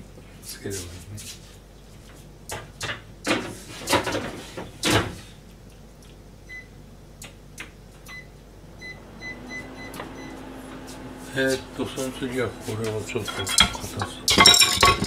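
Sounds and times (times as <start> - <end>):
kitchen things knocking: 13.2 - 15.0.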